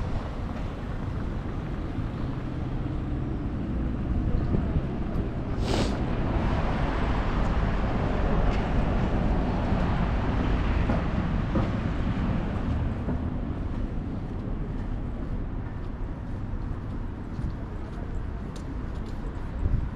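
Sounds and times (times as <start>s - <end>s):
street low rumble: 0.0s - 19.9s
short hiss: 5.6s - 6.0s.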